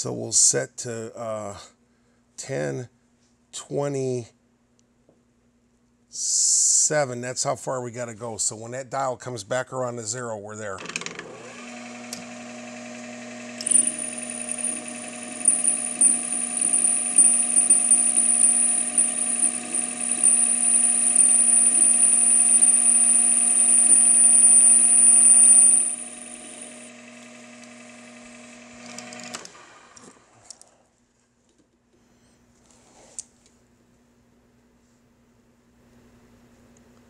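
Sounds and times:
metal lathe running: 0:11.8 - 0:28.6.

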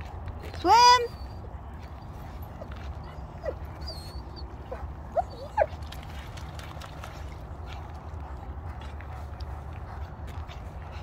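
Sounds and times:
dog whimpering: 0:03.1 - 0:05.7.

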